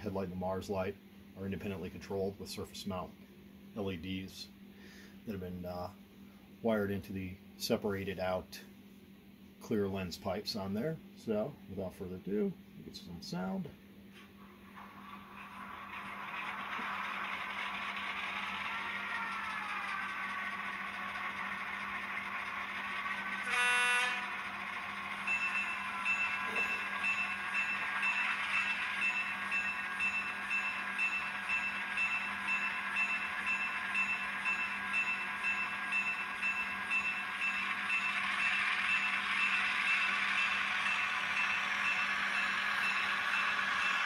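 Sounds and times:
locomotive bell ringing: 21.2s - 44.0s
locomotive horn blast: 23.4s - 24.4s.

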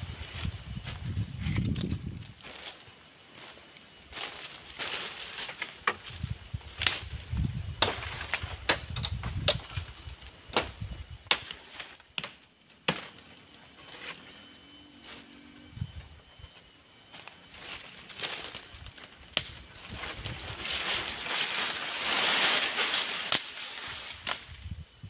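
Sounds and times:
woody stems snapping: 6.8s - 7.1s, 18.2s - 20.4s, 22.4s - 24.4s
rustling brush: 19.8s - 24.2s.

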